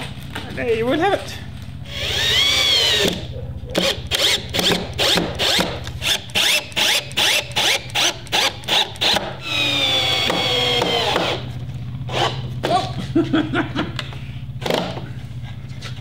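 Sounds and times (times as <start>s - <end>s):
power drill whirring: 1.8s - 11.5s, 12.1s - 12.4s.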